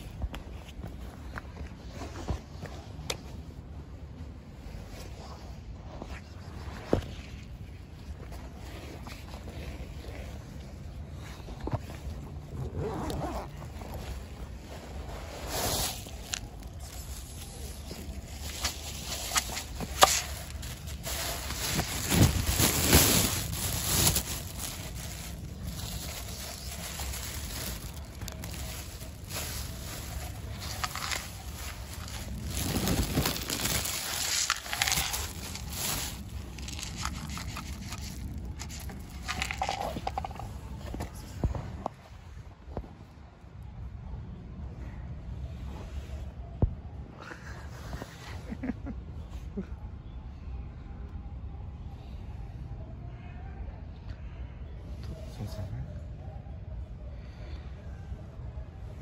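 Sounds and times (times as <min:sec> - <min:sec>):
backpack fabric rustling: 0:11.2 - 0:40.4.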